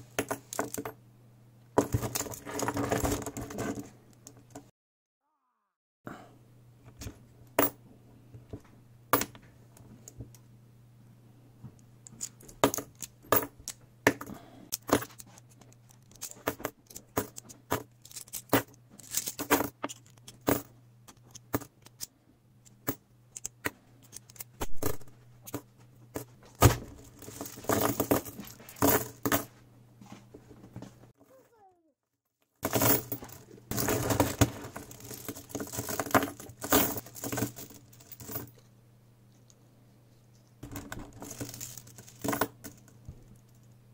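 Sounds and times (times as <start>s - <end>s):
coins dropping onto cloth table: 0.2s - 1.0s, 12.1s - 22.0s, 24.1s - 29.5s, 32.6s - 38.6s, 40.6s - 43.4s
metal coins clinking: 14.7s - 22.1s, 27.0s - 29.5s, 32.6s - 38.6s, 40.6s - 43.7s.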